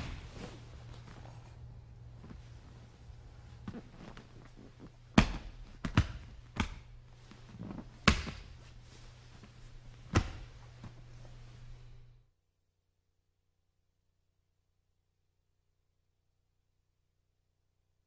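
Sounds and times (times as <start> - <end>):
bodies thudding on a grappling mat: 0.0 - 0.8, 3.6 - 9.0
low steady hum: 0.0 - 18.0.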